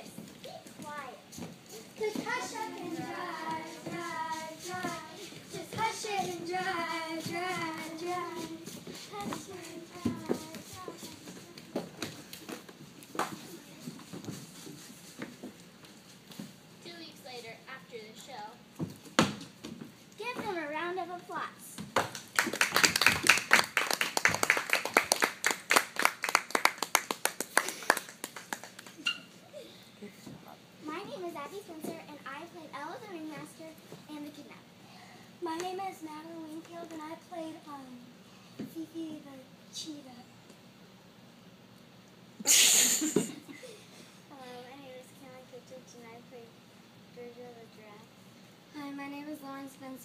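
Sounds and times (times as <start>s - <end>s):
girls singing: 1.9s - 11.2s
audience applause: 22.0s - 29.0s.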